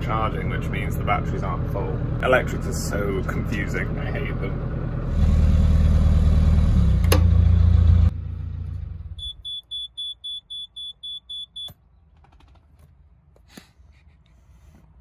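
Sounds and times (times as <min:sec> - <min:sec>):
diesel engine running: 0:00.0 - 0:09.5
rapid alarm beeps: 0:09.2 - 0:11.8.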